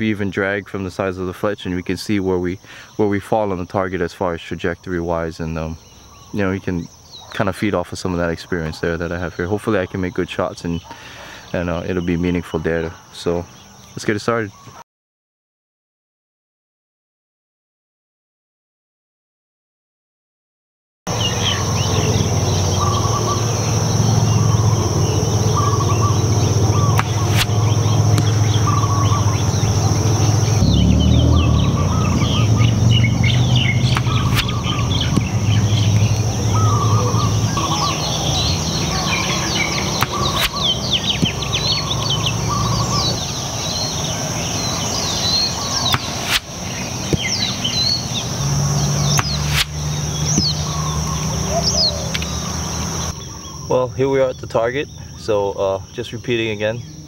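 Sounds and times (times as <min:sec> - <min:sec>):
birdsong chirping: 0:00.0 - 0:14.8, 0:21.1 - 0:57.0
steady high buzz: 0:21.1 - 0:54.7
bow shot snaps: 0:26.9 - 0:28.7, 0:33.9 - 0:35.3, 0:39.9 - 0:41.5, 0:45.3 - 0:47.9, 0:49.0 - 0:50.6.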